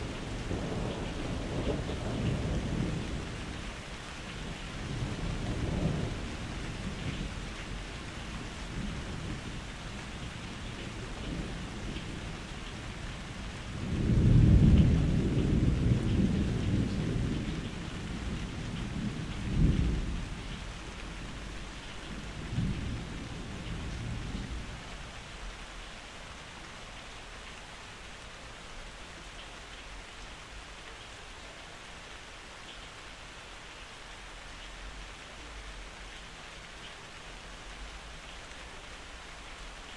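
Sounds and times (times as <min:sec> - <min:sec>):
steady rain: 0:00.0 - 0:39.9
rolling thunder: 0:13.6 - 0:24.8.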